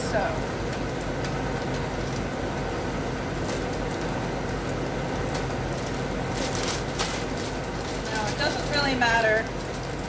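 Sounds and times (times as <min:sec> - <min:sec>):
low hum of room machinery: 0:00.0 - 0:10.0
plastic bag crinkling: 0:03.4 - 0:10.0.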